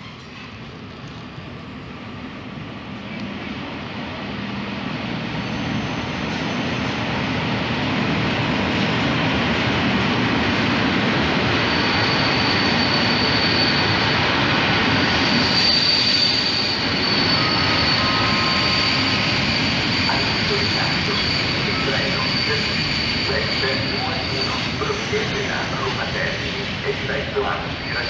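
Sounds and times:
high steady squeal: 0:15.0 - 0:28.0.

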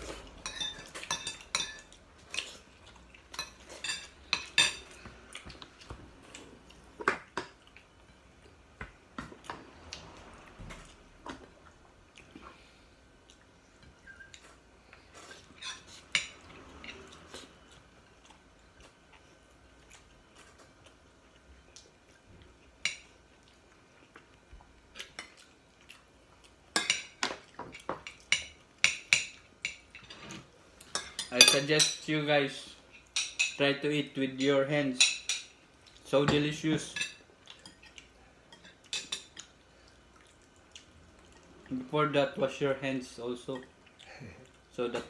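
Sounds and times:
cutlery clinking on ceramic plates: 0:00.4 - 0:02.5, 0:30.9 - 0:32.1.

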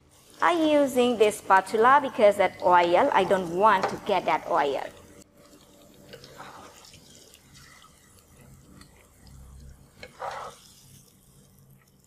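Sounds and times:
wet sticky sauce sounds: 0:04.9 - 0:12.0
spatula scraping pan: 0:06.1 - 0:08.2, 0:10.0 - 0:11.0.

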